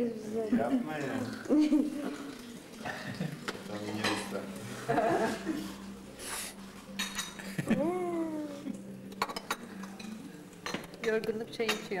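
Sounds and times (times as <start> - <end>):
dishes clinking: 2.8 - 5.3, 6.9 - 7.7, 9.1 - 12.0.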